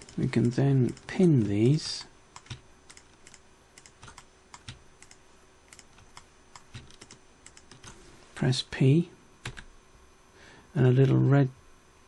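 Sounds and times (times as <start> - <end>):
mouse and keyboard clicks: 1.9 - 8.0.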